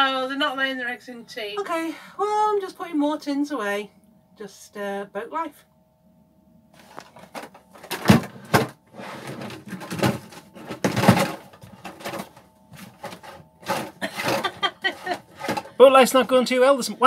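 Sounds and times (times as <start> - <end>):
knocks and scrapes: 6.8 - 15.7.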